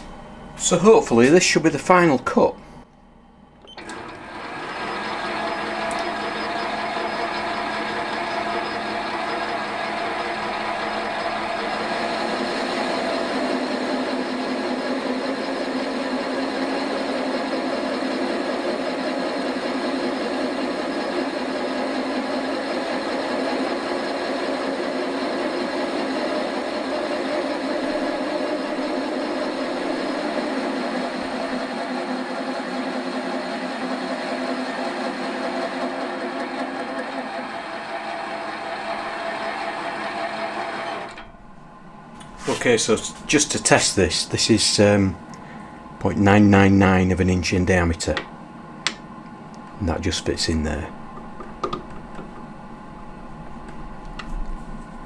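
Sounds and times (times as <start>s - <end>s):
metal lathe cutting: 3.8s - 41.2s.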